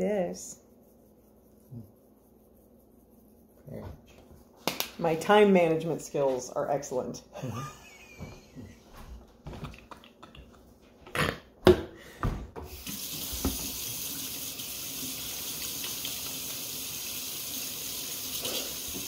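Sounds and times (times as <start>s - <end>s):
faucet running into steel sink: 12.7s - 19.0s.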